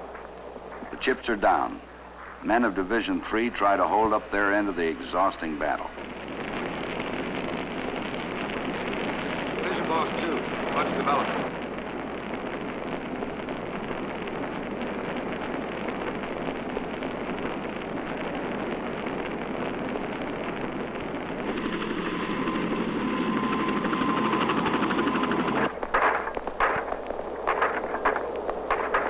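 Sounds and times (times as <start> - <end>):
wildfire burning: 0.0 - 29.0
aircraft engine whine: 20.8 - 25.8.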